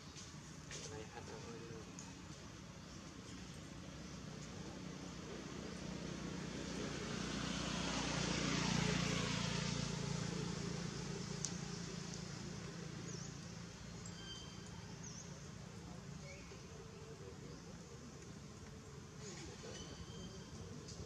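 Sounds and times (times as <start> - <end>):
vehicle driving past: 3.7 - 15.8
faint bird chirps: 13.0 - 15.5, 19.2 - 21.0.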